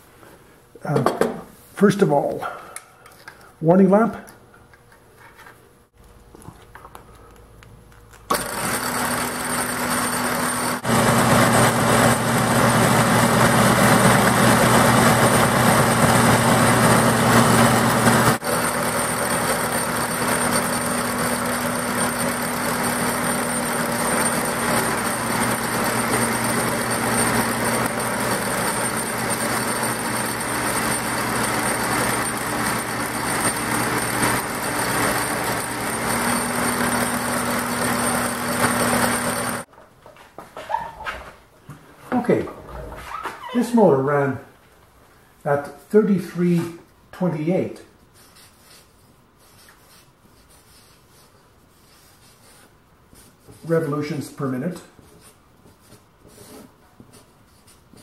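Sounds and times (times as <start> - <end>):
electric motor running: 8.3 - 39.7.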